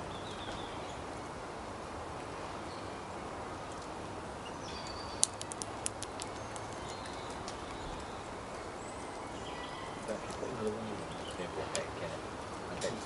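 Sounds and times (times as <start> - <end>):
steady background hiss: 0.0 - 13.0
squirrel gnawing nut cracks: 4.8 - 8.2.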